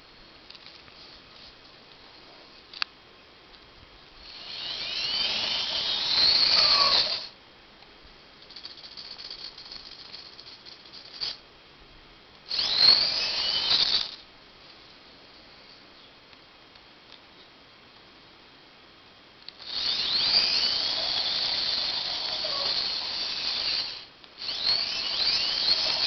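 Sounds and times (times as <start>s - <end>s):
small motors whirring: 4.2s - 7.3s, 12.5s - 14.2s, 19.6s - 26.0s.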